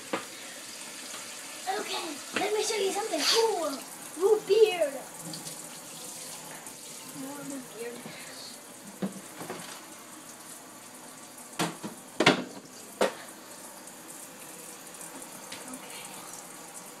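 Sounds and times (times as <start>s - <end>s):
tap running into metal sink: 11.6s - 13.2s.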